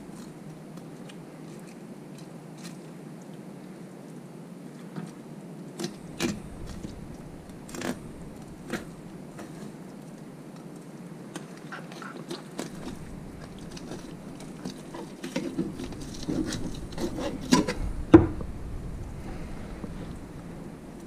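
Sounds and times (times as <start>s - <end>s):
knife scraping fish: 12.1s - 17.8s
fish rubbing on wooden board: 12.7s - 17.8s.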